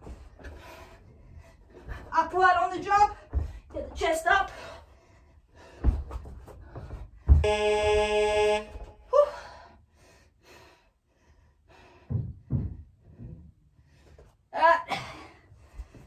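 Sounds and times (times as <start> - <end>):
short thuds: 5.6 - 9.0
electronic buzzer tone: 7.4 - 8.9.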